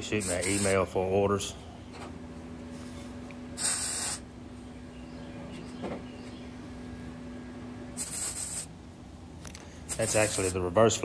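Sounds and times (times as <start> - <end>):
welder crackling hiss: 0.0 - 0.8, 3.6 - 4.2, 8.0 - 8.7, 9.9 - 10.6
low hum: 0.8 - 9.9.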